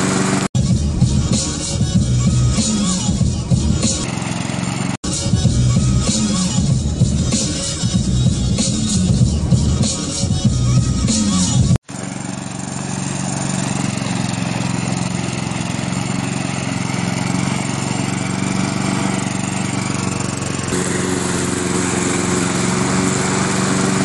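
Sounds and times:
lawn mower engine running: 0.0s - 24.0s.

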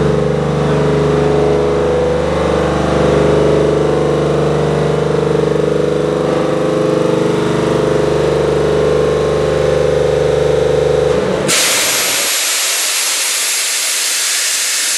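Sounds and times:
air compressor running: 11.1s - 14.9s
compressed air hissing: 11.5s - 14.9s.

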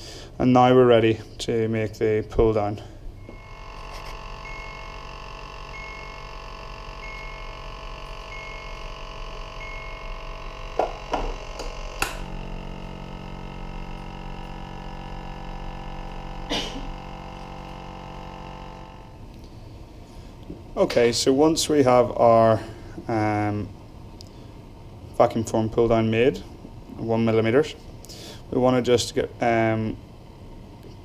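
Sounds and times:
machine droning: 0.0s - 31.0s
deep suction hum: 2.2s - 27.3s
short beeps: 3.2s - 11.4s.

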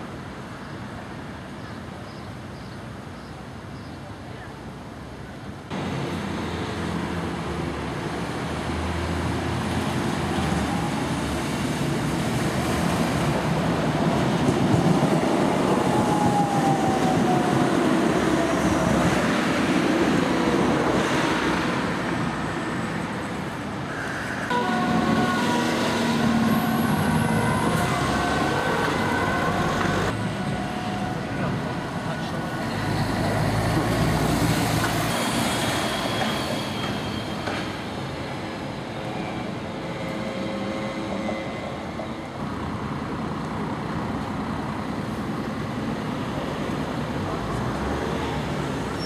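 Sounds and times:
light rail car passing with whine: 0.0s - 49.0s
diesel bus engine passing: 5.7s - 36.8s.

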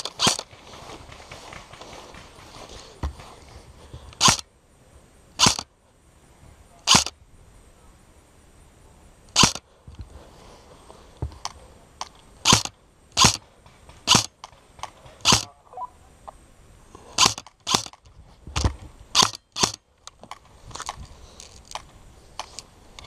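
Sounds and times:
airsoft rifle shots popping: 4.2s - 4.5s, 5.4s - 5.7s, 6.8s - 7.1s, 9.3s - 9.6s, 11.4s - 16.4s, 17.2s - 18.0s, 18.6s - 20.4s.

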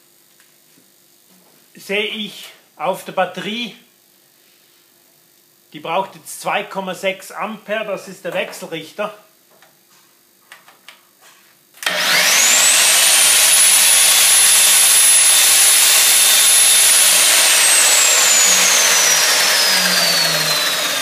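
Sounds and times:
angle grinder whine: 11.8s - 21.0s.

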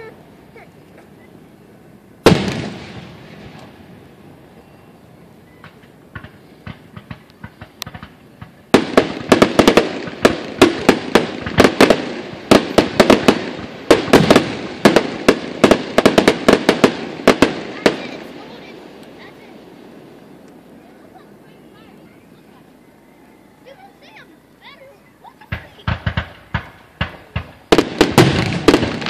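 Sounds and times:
fireworks popping and banging: 2.2s - 4.1s, 5.5s - 20.8s, 25.3s - 29.0s.

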